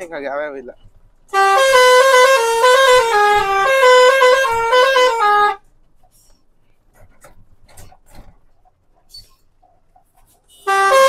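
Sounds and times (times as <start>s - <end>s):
truck musical horn: 1.3s - 5.6s, 10.5s - 11.0s.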